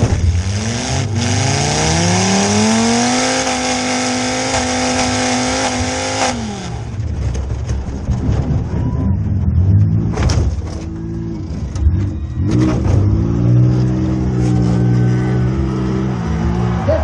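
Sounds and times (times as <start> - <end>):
engine revving: 0.0 - 7.1.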